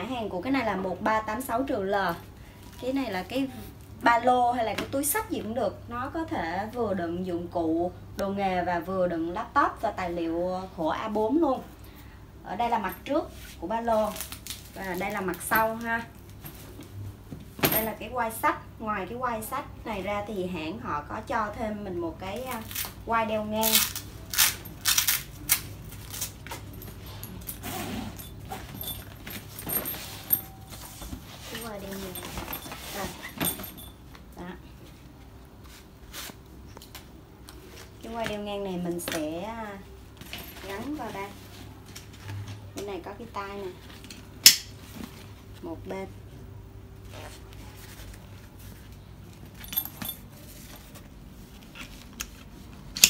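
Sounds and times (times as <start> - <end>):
fabric rustling: 23.6 - 33.9, 47.0 - 53.0.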